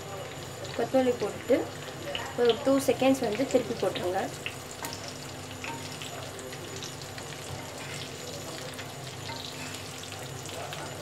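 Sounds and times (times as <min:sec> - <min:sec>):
eggs sizzling in oil: 0:00.0 - 0:11.0
metal spatula turning food: 0:03.3 - 0:11.0.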